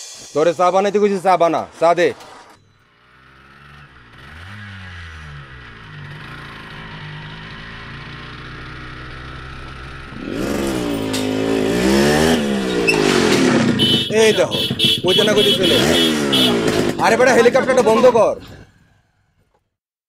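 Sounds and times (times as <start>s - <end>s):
motorcycle engine revving: 2.6s - 19.4s.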